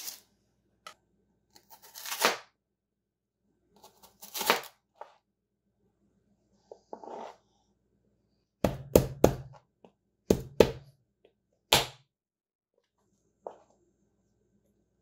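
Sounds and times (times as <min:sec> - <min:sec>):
knife chopping on cutting board: 0:10.3 - 0:10.8.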